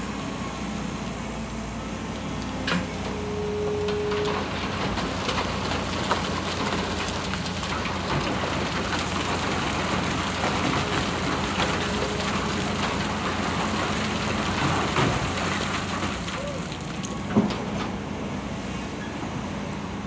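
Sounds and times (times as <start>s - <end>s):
diesel engine running: 0.0s - 20.0s
sand and rock pouring into truck: 4.2s - 17.8s.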